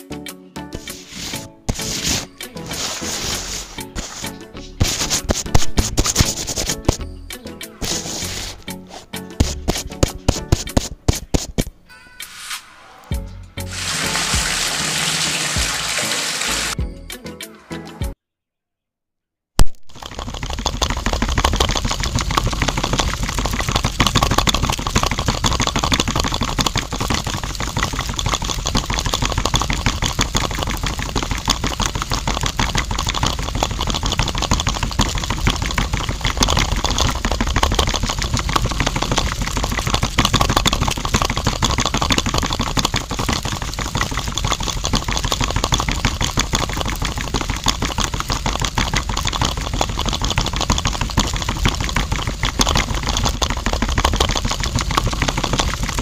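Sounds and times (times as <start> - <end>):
mixer drum rattling: 19.9 - 56.0.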